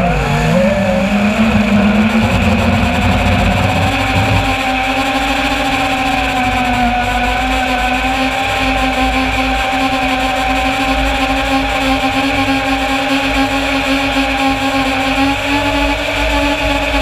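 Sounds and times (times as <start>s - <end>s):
quadcopter motors whining: 0.0s - 4.8s
wind rumble on microphone: 0.6s - 5.1s.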